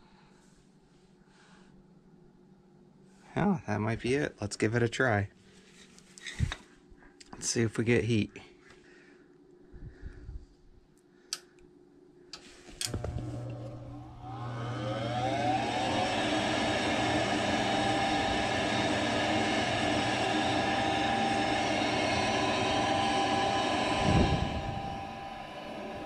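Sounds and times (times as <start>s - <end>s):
click: 11.3s - 11.7s
furnace motor humming and whining: 12.4s - 26.0s.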